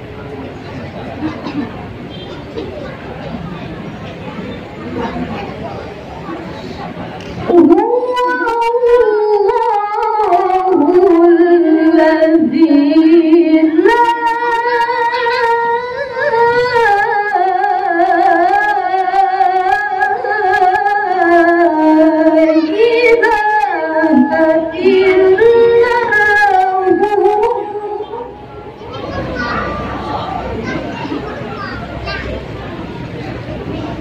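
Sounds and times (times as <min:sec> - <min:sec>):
woman reciting melodically: 0:07.4 - 0:30.5.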